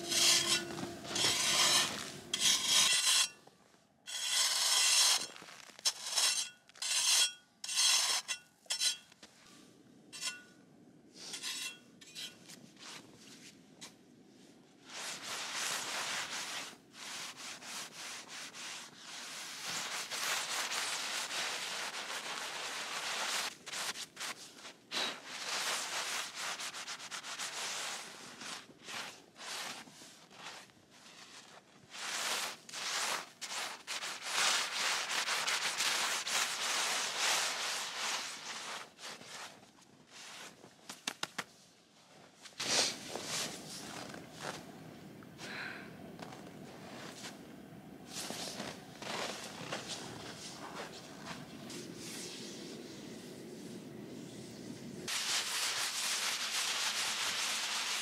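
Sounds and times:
long scraping strokes: 0.0 - 3.4, 4.1 - 9.6, 14.9 - 39.5, 48.1 - 58.0.

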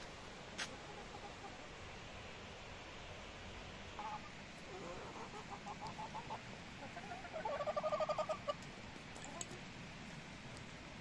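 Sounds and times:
hens clucking: 4.0 - 8.7.

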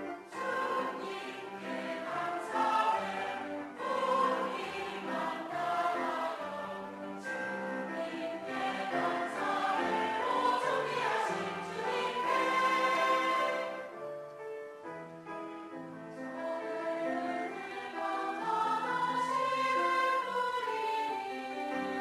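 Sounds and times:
mixed choir singing a hymn: 0.0 - 14.0, 16.4 - 22.0.

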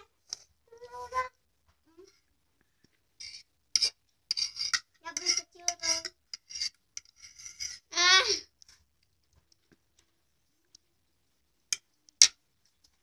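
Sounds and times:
fork scraping on ceramic plate: 3.2 - 7.9.

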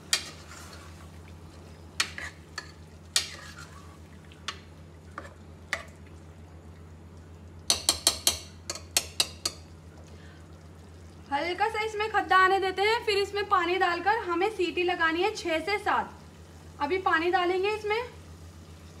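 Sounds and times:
faint frying sizzle: 0.0 - 19.0
spoon knocking and scraping pot: 2.0 - 3.8, 7.7 - 9.6.

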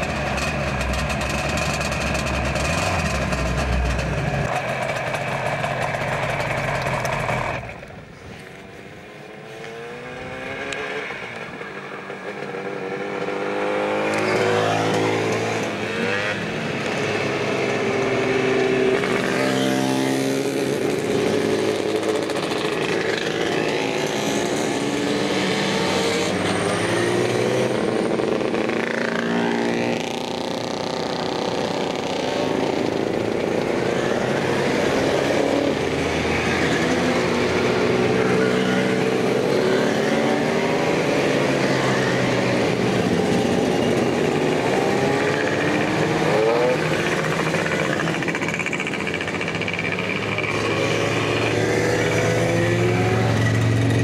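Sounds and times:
motorcycles riding past: 9.2 - 54.0
steady engine sound: 41.8 - 54.0.

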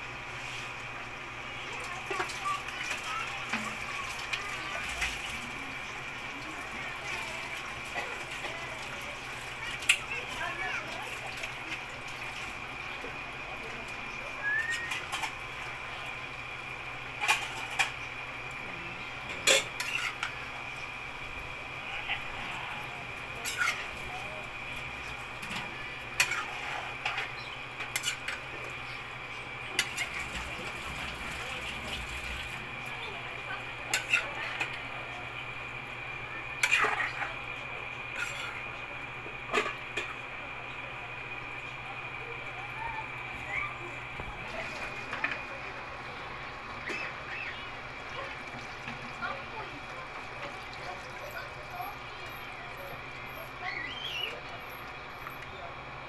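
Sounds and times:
metal spatula scraping a pan: 19.4 - 20.3, 23.4 - 23.9, 26.2 - 27.3, 27.9 - 28.4, 33.9 - 34.6, 36.6 - 37.3.

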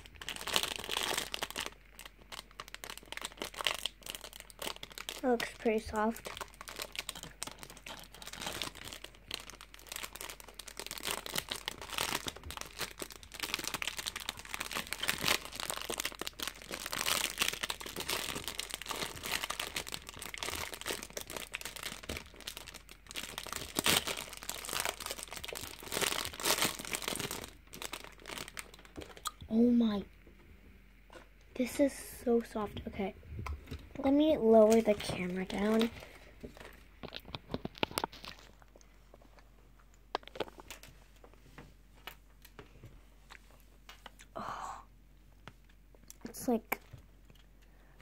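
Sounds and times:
plastic film crinkling: 0.0 - 29.3, 33.7 - 41.4.

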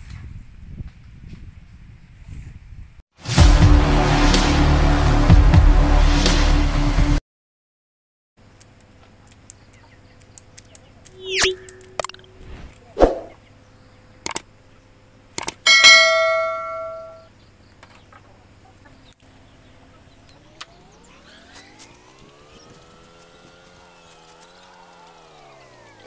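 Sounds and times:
metallic ring: 15.7 - 17.3.

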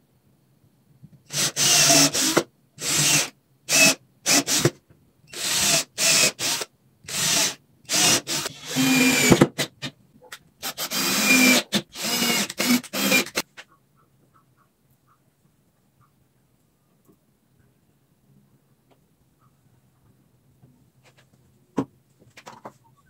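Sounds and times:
power drill short bursts: 5.3 - 9.4, 10.6 - 13.4.

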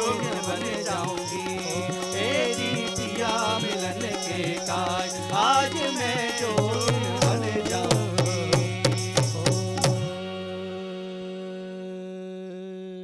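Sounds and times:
small hand cymbals: 0.0 - 10.1
bamboo flute melody: 0.0 - 11.4
harmonium drone: 0.0 - 13.0.

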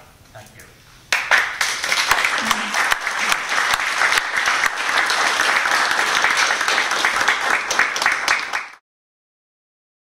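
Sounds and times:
audience applauding: 1.1 - 8.8.

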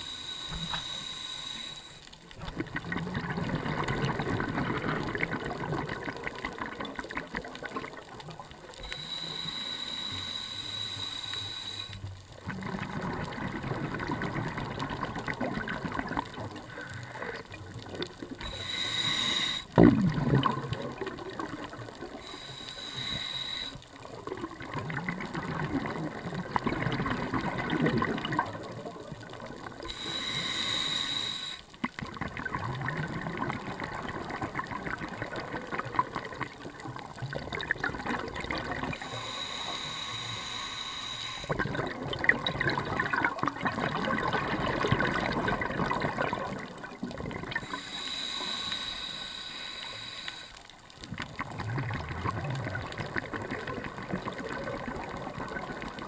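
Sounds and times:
hissing regulator inhalations: 0.0 - 2.2, 8.8 - 12.2, 18.4 - 19.8, 22.2 - 24.0, 29.8 - 31.8, 38.9 - 41.7, 47.5 - 50.7
bubbling exhalation: 17.2 - 22.3, 41.4 - 48.4.

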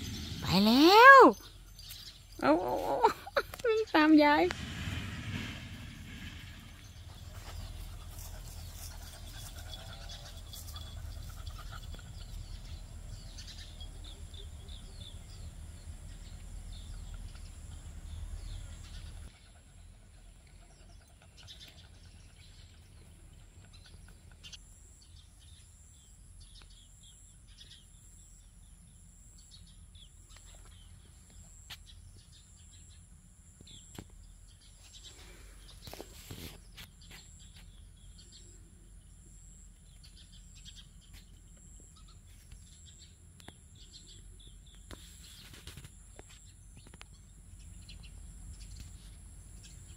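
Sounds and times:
small birds chirping: 0.0 - 4.5, 5.8 - 49.9
low rumble: 4.5 - 8.4.

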